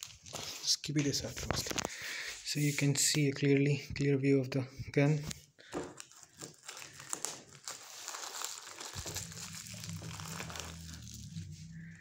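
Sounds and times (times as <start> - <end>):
plastic wrapping crinkling: 0.0 - 2.0, 5.6 - 12.0.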